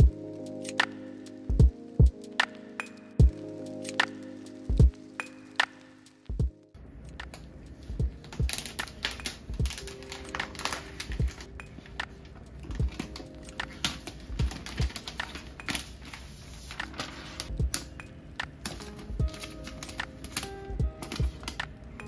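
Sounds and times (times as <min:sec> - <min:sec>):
soft background music: 0:00.0 - 0:22.0
plastic film peeling crackles: 0:07.0 - 0:17.9, 0:18.5 - 0:22.0.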